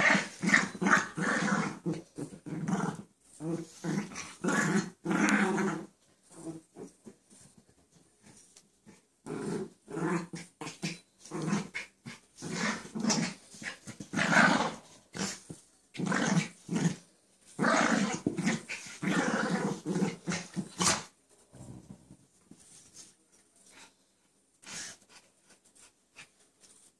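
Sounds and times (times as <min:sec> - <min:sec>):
dogs growling playfully: 0:00.0 - 0:07.1, 0:08.8 - 0:22.2.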